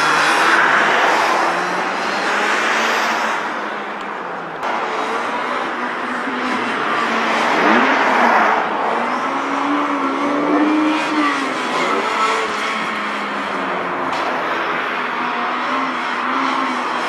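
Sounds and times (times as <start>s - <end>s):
truck engine revving: 4.6s - 17.0s.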